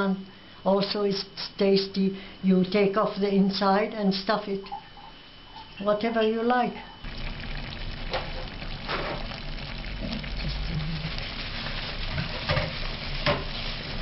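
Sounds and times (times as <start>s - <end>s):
food sizzling: 6.9s - 14.0s.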